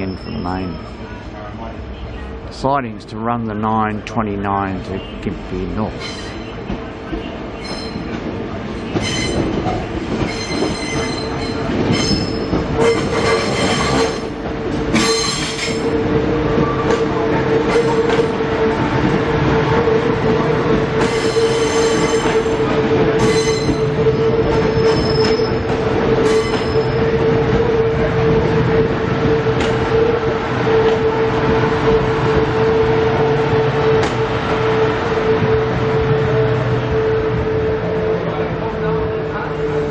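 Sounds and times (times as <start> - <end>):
train wheels squealing: 0.0 - 1.0, 6.0 - 6.6, 7.2 - 8.2, 8.9 - 9.5, 10.2 - 14.3, 14.9 - 15.9, 21.0 - 22.5, 23.2 - 27.1
train steady hum: 0.0 - 39.9.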